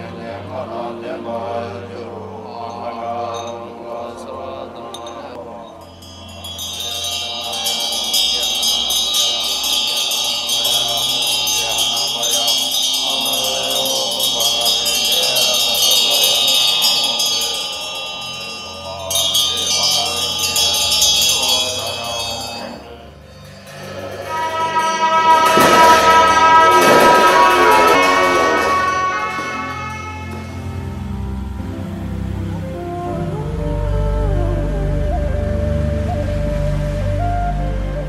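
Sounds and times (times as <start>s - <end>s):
low monks chanting: 0.0s - 35.4s
hand bells ringing rapidly: 4.9s - 30.8s.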